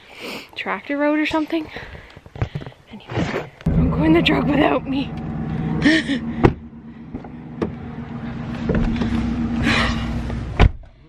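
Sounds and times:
truck engine idling: 3.7 - 10.6
car door shutting: 3.7 - 10.9
knocks and rustling: 5.2 - 10.8.

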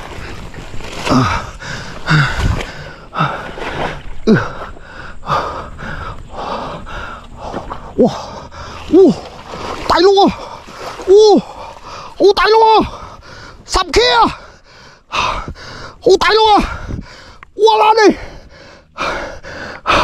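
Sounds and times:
man panting and grunting: 1.0 - 20.0
man crying out: 11.1 - 11.5.

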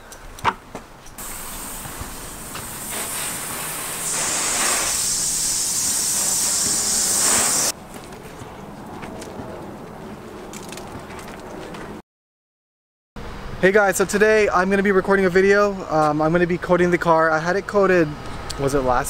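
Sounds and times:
hose spraying water on car: 1.2 - 7.8.

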